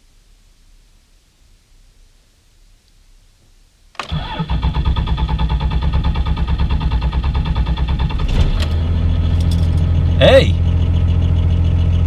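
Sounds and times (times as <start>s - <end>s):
diesel engine starter cranking: 4.0s - 12.0s.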